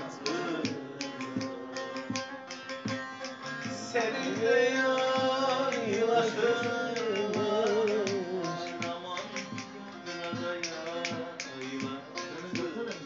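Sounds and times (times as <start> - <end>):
man singing folk melody: 0.0 - 2.3, 3.5 - 13.0
strummed saz: 0.0 - 13.0.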